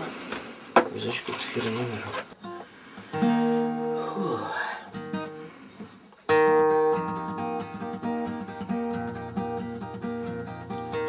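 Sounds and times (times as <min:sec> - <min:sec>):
acoustic guitar playing: 0:02.3 - 0:11.0.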